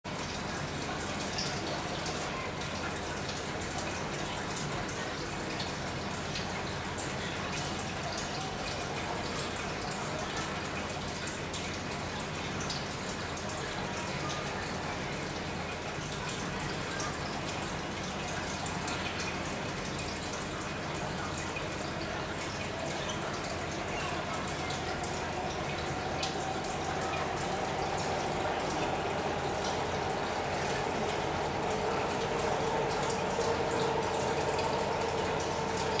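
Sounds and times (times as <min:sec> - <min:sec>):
aquarium water bubbling: 0:00.1 - 0:36.0
small water splashes: 0:16.3 - 0:36.0
faint droning tone: 0:22.2 - 0:36.0
steady low hum: 0:22.8 - 0:36.0.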